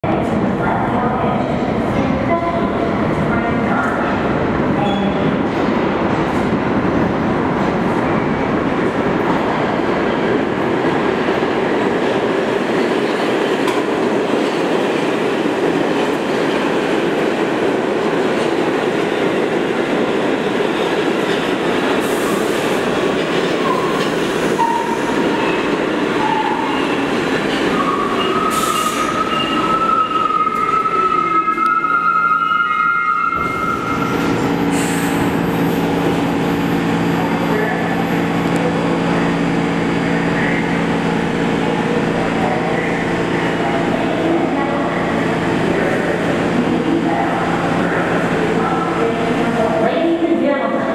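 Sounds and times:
steady train hum: 0.0 - 50.9
subway train rumbling on rails: 0.0 - 50.9
falling whine of braking train: 23.6 - 39.3
high brake squeals: 27.8 - 35.3.

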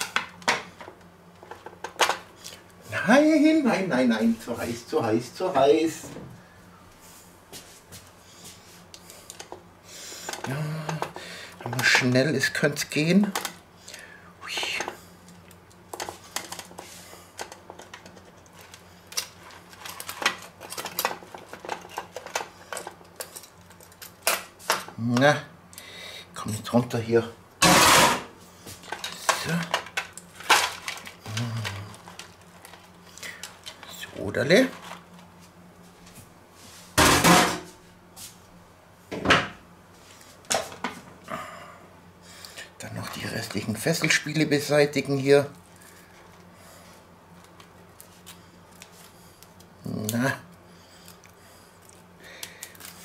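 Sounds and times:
faint low hum: 28.5 - 38.4.

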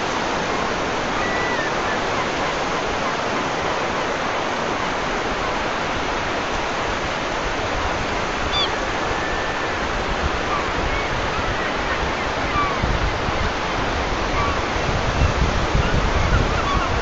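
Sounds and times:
running water rushing: 0.0 - 17.0.

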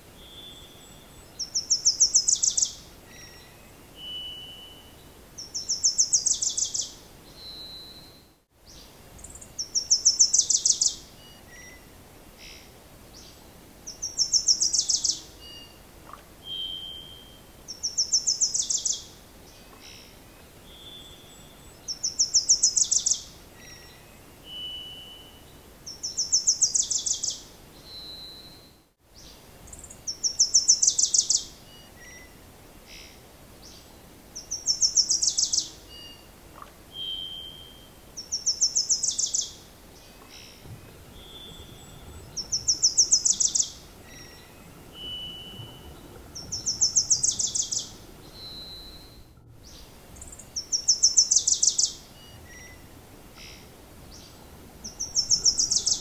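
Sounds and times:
songbird whistled notes: 0.2 - 5.0, 16.4 - 17.4, 20.7 - 25.4, 36.9 - 39.6, 40.8 - 52.8, 54.9 - 56.0
songbird high trill: 36.9 - 56.0.

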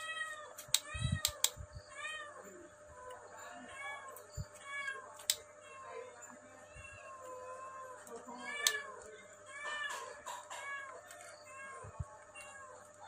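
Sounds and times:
sharp clicks: 0.6 - 1.6, 5.2 - 5.5
cat mewing: 6.7 - 12.9.

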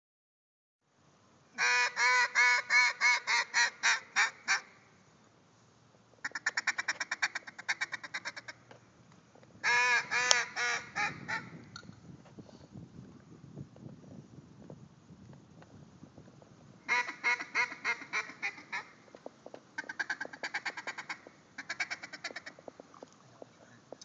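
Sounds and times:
duck call quacking: 1.6 - 4.7, 6.2 - 8.6, 9.6 - 11.5, 16.9 - 18.9, 19.8 - 22.5.

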